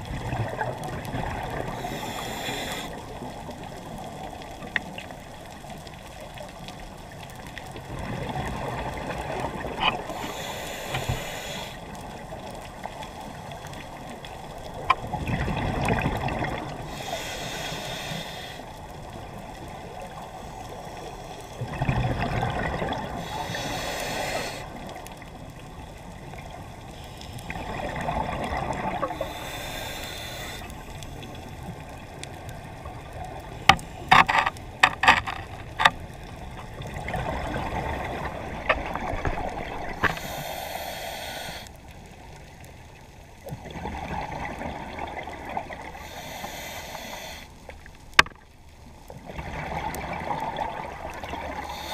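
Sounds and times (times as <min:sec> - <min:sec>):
diver breathing through regulator: 0:01.6 - 0:03.1, 0:10.0 - 0:12.0, 0:16.8 - 0:18.8, 0:22.9 - 0:24.9, 0:29.0 - 0:31.4, 0:39.9 - 0:41.8, 0:45.9 - 0:47.7, 0:51.5 - 0:51.9.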